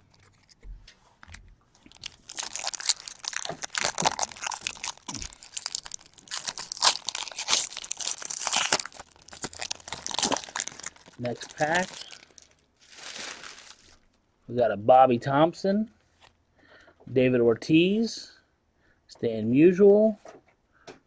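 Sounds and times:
foil wrapper crinkling torn open: 1.8s - 14.2s.

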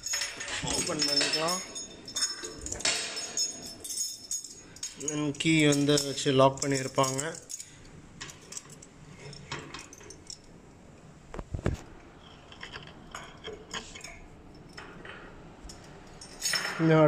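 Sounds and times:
keys jangling: 0.0s - 10.5s, 15.7s - 16.8s.

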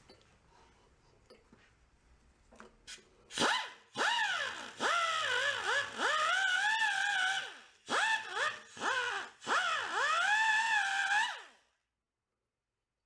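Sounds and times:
rotary tool motor whining: 3.5s - 11.6s.

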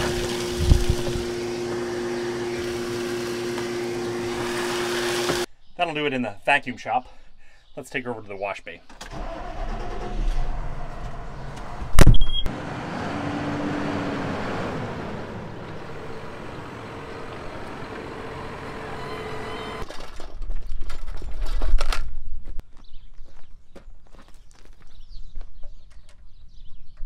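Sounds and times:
tractor diesel engine running: 9.0s - 19.8s.

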